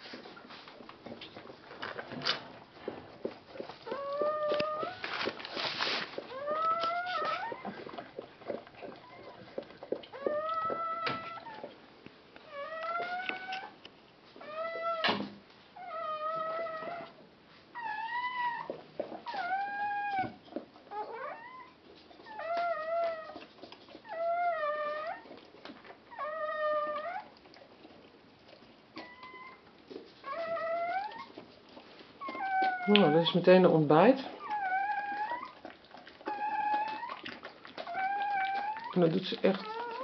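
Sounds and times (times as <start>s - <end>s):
puppy squealing: 3.9s - 5.0s, 6.2s - 8.0s, 10.1s - 11.7s, 12.5s - 13.8s, 14.4s - 15.1s, 15.8s - 17.1s, 17.8s - 23.4s, 24.0s - 25.3s, 26.1s - 27.3s, 29.0s - 29.6s, 30.2s - 31.4s, 32.2s - 33.4s, 34.3s - 40.0s
bedding rustling: 5.0s - 6.4s.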